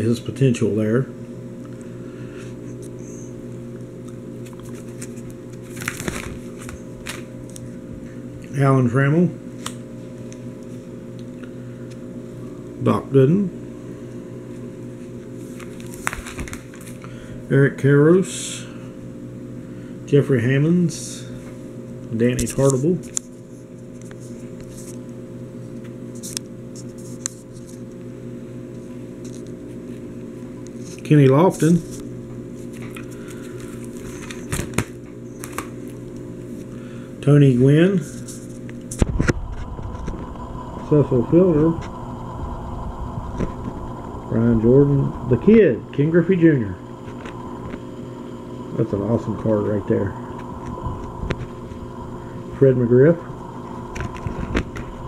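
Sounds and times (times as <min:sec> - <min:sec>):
steady low hum: 0:00.0 - 0:55.0
plastic binder pages crinkling: 0:04.4 - 0:07.7, 0:15.4 - 0:17.1, 0:31.7 - 0:36.0
plastic sleeves crackling: 0:04.4 - 0:07.7, 0:15.4 - 0:17.1.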